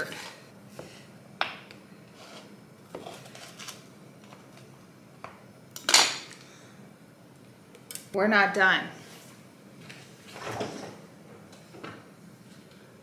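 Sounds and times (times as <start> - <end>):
knife scraping board: 0.0 - 0.5, 2.1 - 3.7.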